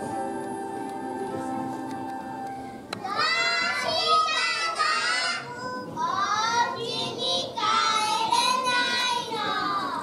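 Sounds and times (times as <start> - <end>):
girls singing in unison: 3.0 - 10.0.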